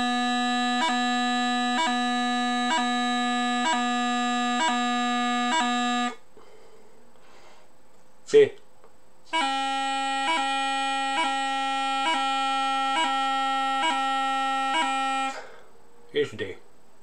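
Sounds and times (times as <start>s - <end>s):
bagpipe practice chanter: 0.0s - 6.2s, 9.3s - 15.7s.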